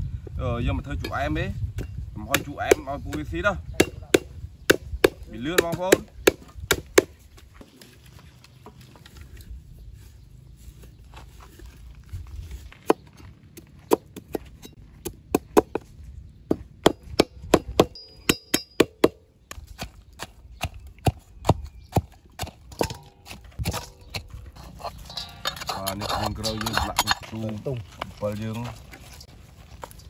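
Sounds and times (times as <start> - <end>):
pestle pounding in clay mortar: 1.0 - 7.2, 16.6 - 27.2
cleaver chopping on wooden board: 2.3 - 7.2, 16.8 - 24.3.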